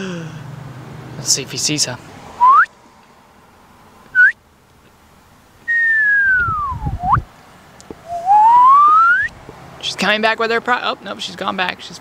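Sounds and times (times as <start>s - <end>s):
person whistling sliding pitches: 2.4s - 2.7s, 4.2s - 4.4s, 5.7s - 7.2s, 8.0s - 9.3s.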